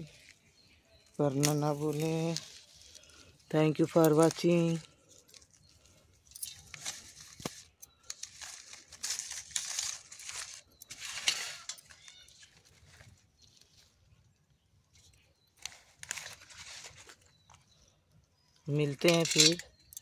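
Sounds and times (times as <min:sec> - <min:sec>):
vegetables rustling in basket: 0:01.2 - 0:14.0, 0:15.6 - 0:17.3.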